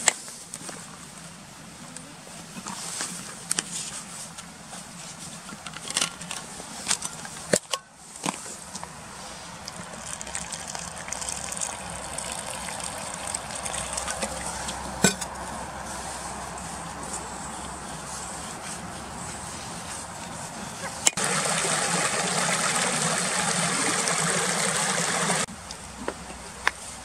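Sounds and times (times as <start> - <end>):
water pouring into steel bowl: 9.6 - 14.8, 21.2 - 25.5.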